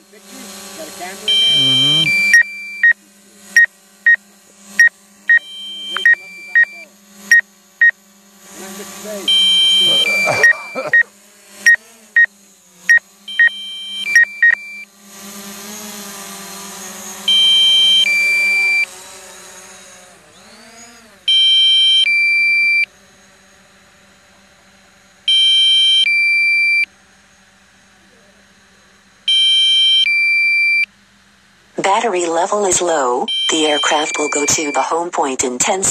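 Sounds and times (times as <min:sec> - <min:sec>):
steady low hum: 0:00.0 - 0:25.3
loud two-tone beep: 0:01.3 - 0:03.0, 0:04.8 - 0:07.4, 0:09.3 - 0:11.0, 0:13.3 - 0:14.8, 0:21.3 - 0:22.8, 0:25.3 - 0:26.8, 0:29.3 - 0:30.9, 0:33.3 - 0:35.4
short electronic beeps: 0:01.3 - 0:03.0, 0:04.8 - 0:07.4, 0:09.3 - 0:11.0, 0:12.9 - 0:14.8, 0:33.3 - 0:35.4.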